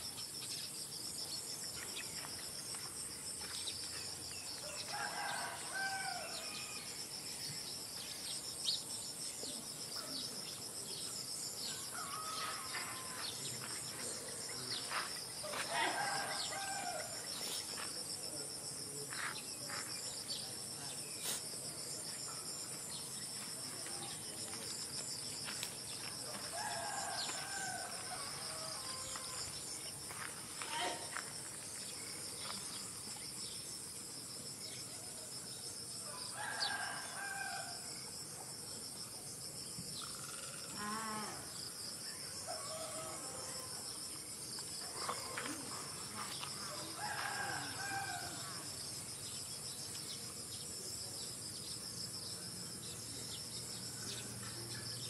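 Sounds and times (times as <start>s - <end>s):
insects chirring: 0.0s - 55.0s
rooster crowing: 4.7s - 6.8s, 11.9s - 13.3s, 15.5s - 17.2s, 26.5s - 29.4s, 36.2s - 37.8s, 46.9s - 48.7s.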